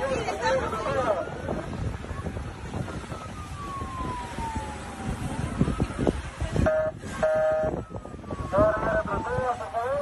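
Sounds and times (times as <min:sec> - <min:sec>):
wind noise on microphone: 0:00.0 - 0:10.0
siren wailing: 0:02.2 - 0:10.0
horn-like tone: 0:06.6 - 0:07.8.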